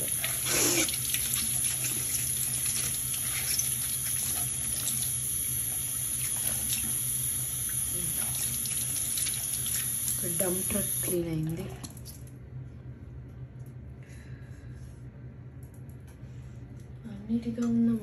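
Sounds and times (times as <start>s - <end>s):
tap water running into sink: 0.0s - 11.1s
water splashing over bath toy: 0.0s - 11.2s.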